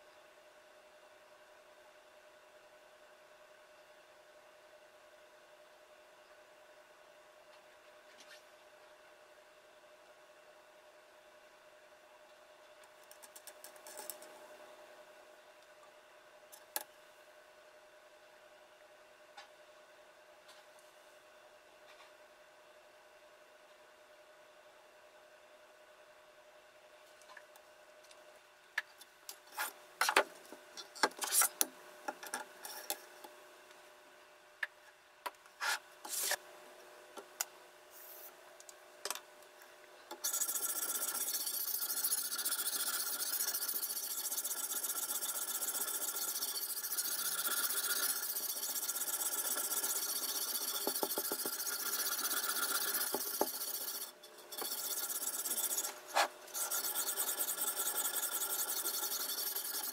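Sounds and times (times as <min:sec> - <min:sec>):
sharpening stone scraping knife: 0:40.2 - 0:59.9.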